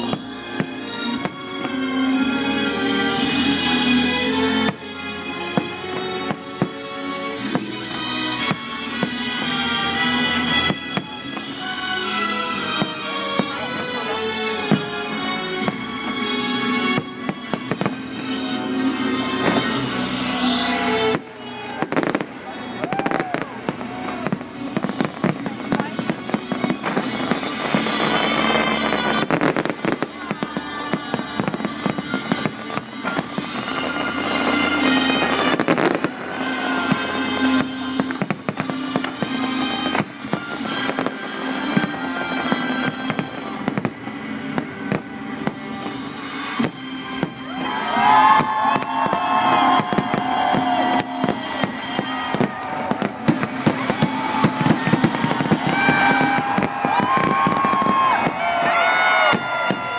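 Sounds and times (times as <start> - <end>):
fireworks bursting and crackling: 0.0 - 59.9
show music over loudspeakers: 0.0 - 59.9.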